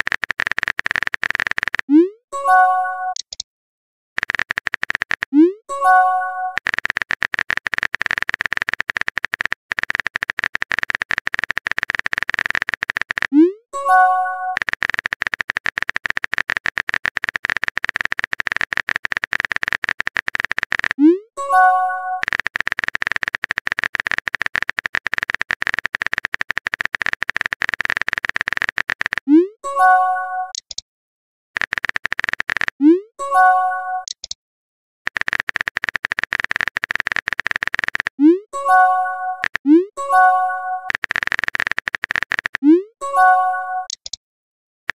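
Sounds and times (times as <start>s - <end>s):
keyboard typing clicks: 0.0s - 3.4s, 4.2s - 30.8s, 31.6s - 34.4s, 35.1s - 44.2s
phone keyboard key clicks: 4.2s - 5.3s, 6.6s - 13.3s, 14.6s - 21.0s, 31.6s - 32.8s, 35.1s - 38.1s, 40.9s - 42.6s, 43.9s - 44.2s.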